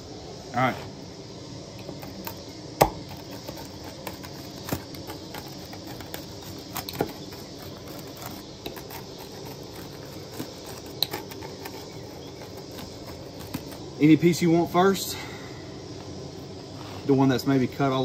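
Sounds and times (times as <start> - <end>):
faint steady hiss: 0.0 - 18.0
pizza cutter rolling through crust: 1.9 - 14.4.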